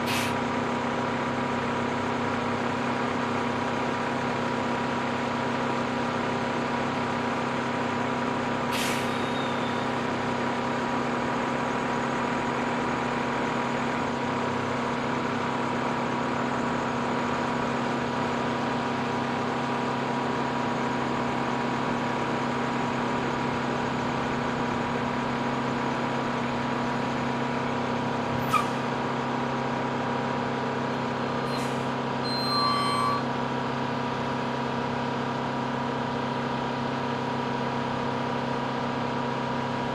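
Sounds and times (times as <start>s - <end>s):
air brakes hissing: 0.0s - 0.4s, 8.7s - 10.0s, 28.4s - 28.9s, 31.4s - 33.3s
truck engine humming: 0.0s - 39.9s
brief squeal: 8.7s - 10.0s, 28.4s - 28.8s, 31.4s - 33.3s.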